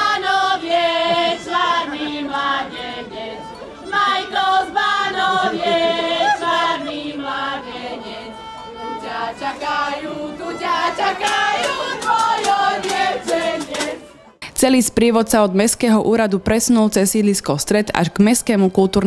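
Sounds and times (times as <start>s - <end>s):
group singing in chorus: 0.0s - 14.3s.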